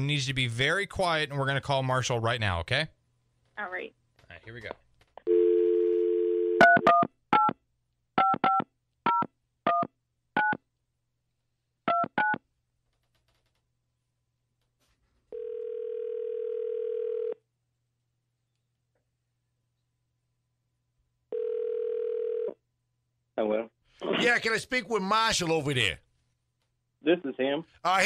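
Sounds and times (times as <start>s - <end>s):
telephone dial tone: 5.3s - 7.0s, 15.3s - 17.4s, 21.3s - 22.6s.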